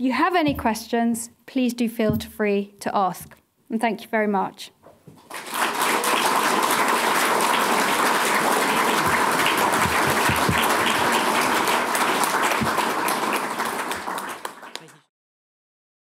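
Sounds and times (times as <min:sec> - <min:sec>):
audience applauding: 0:05.2 - 0:15.1.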